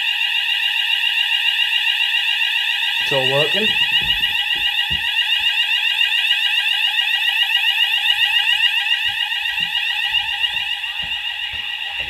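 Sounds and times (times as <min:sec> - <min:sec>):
fire alarm warbling tone: 0:00.0 - 0:12.0
low knocks: 0:03.4 - 0:05.5, 0:08.1 - 0:12.0.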